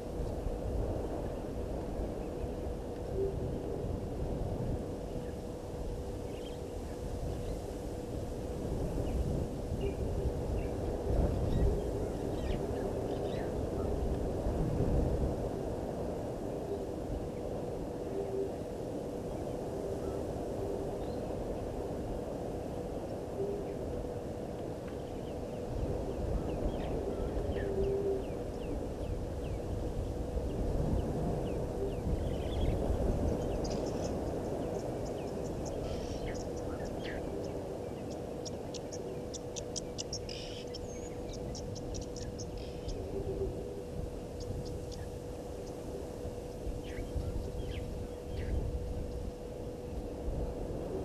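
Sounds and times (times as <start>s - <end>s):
faint constant hum: 0.0s - 51.0s
faint bird chirps: 31.0s - 43.6s.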